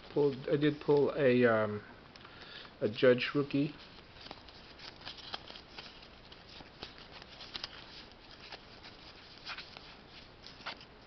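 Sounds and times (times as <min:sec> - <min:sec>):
cardboard cards rustling and clicking: 0:03.8 - 0:11.0.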